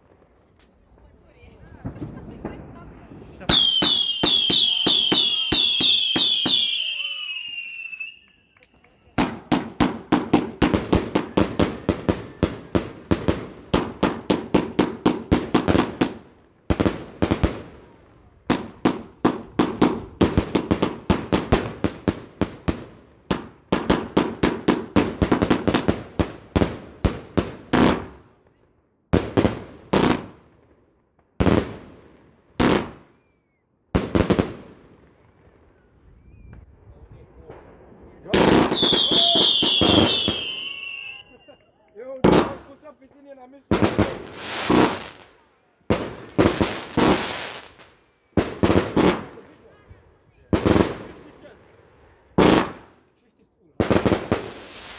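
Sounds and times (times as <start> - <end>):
fireworks battery bangs: 37.5 - 41.2.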